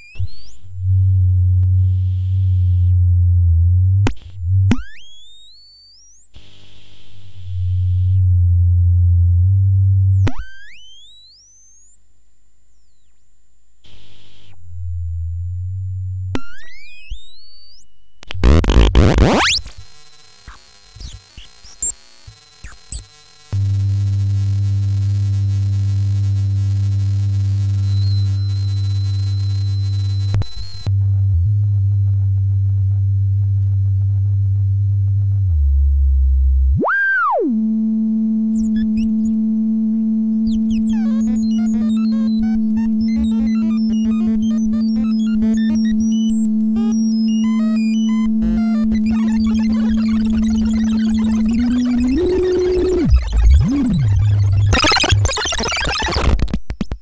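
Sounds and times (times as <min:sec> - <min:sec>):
synthesizer bleeps and drones: 0:26.4 - 0:56.3
rising synth pitch sweeps: 0:36.7 - 0:56.2
high steady synth whistle: 0:36.8 - 0:55.3
fast chirping synth blips: 0:40.6 - 0:56.3.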